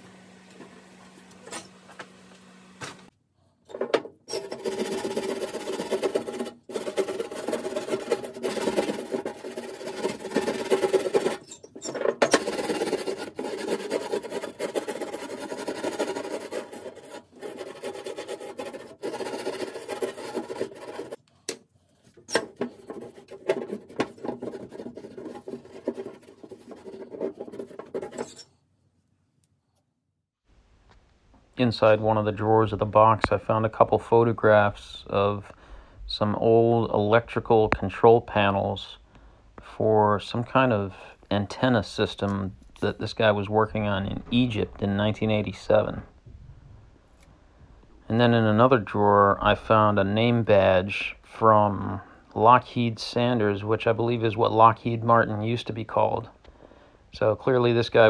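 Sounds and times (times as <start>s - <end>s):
brush scrubbing painted metal: 4.3s - 21.2s, 21.9s - 28.6s.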